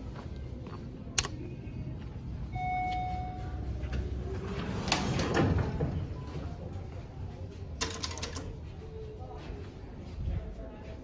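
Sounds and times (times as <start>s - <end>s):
elevator doors opening clatter: 3.9s - 6.6s.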